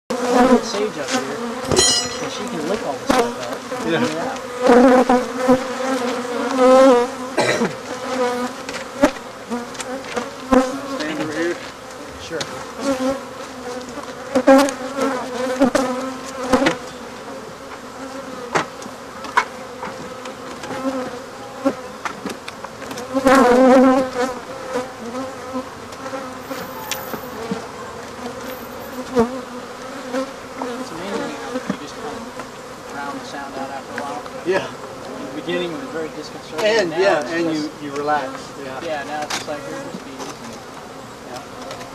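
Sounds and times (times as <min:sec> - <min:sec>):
bees buzzing: 0:00.1 - 0:41.8
sharp knocks: 0:01.6 - 0:02.5.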